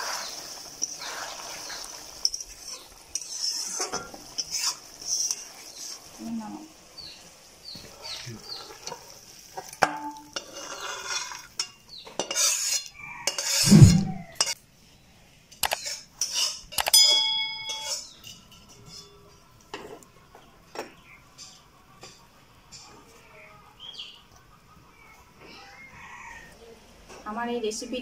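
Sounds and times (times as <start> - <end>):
metal spatula scraping a pan: 0.0 - 6.1, 8.5 - 14.6, 15.7 - 16.7, 17.6 - 20.0
heavy thud: 13.7 - 14.2.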